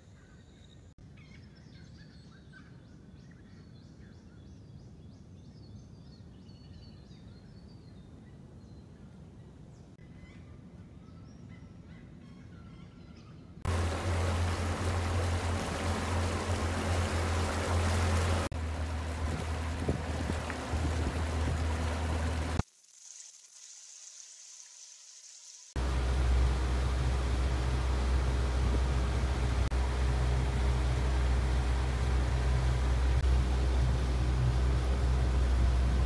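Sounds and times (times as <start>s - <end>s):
birds chirping: 11.1s - 22.6s
boat motor hum: 13.7s - 22.6s, 25.8s - 36.0s
wind and water rushing: 13.7s - 22.6s, 25.7s - 36.0s.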